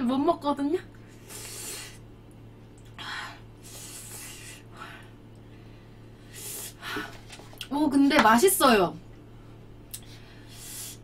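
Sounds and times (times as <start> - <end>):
woman hissing breaths: 3.1 - 5.1, 10.4 - 11.0.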